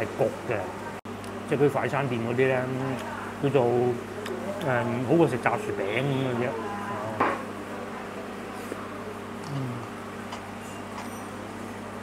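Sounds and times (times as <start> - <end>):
low mechanical hum: 0.0 - 12.0
man humming while chewing: 9.4 - 10.0.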